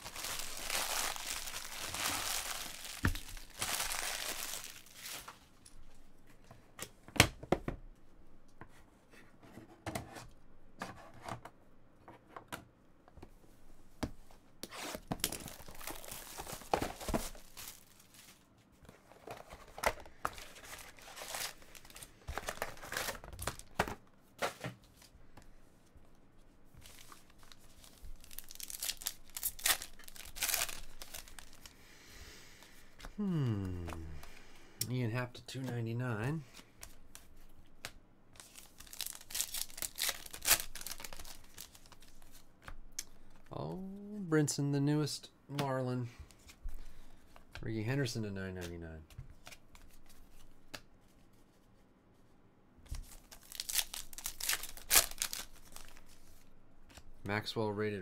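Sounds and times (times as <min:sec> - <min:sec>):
foil wrappers crinkling: 0:00.0 - 0:05.4, 0:15.2 - 0:18.5, 0:20.2 - 0:23.8, 0:26.8 - 0:31.8, 0:38.4 - 0:43.4, 0:53.1 - 0:56.4
wrapper tearing: 0:00.0 - 0:05.4, 0:15.2 - 0:18.4, 0:26.8 - 0:31.7, 0:38.4 - 0:42.4, 0:53.1 - 0:56.3.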